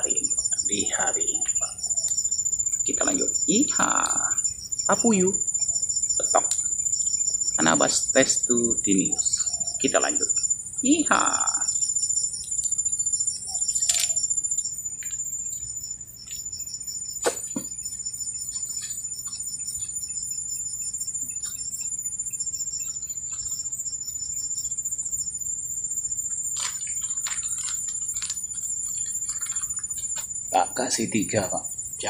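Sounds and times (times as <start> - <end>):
insects chirring: 0.0 - 32.0
sharp click: 17.2 - 17.7.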